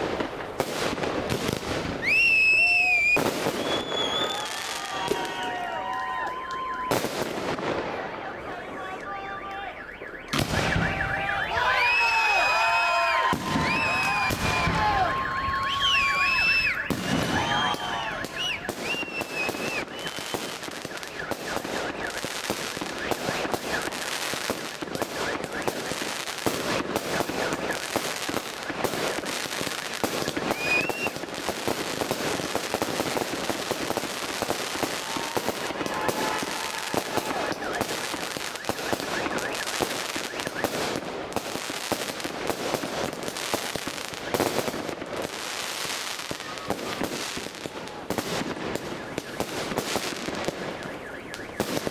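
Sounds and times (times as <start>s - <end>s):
fireworks firing and bursting: 0.0s - 9.0s, 10.0s - 51.9s.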